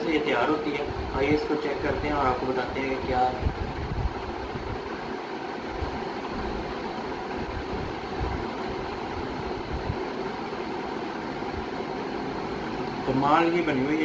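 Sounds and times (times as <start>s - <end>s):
appliance hum and hiss: 0.0s - 14.0s.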